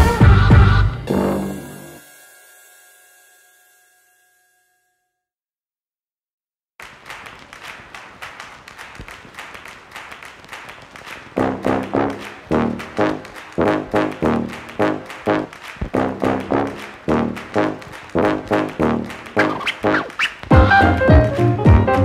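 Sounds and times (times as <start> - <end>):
background music beat: 0.0 - 1.3, 11.4 - 22.0.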